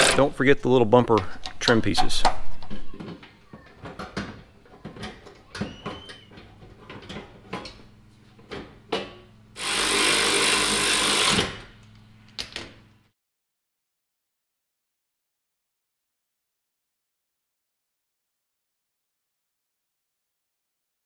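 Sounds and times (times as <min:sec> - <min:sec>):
cordless power tool running: 0:00.0 - 0:00.2, 0:09.6 - 0:12.0.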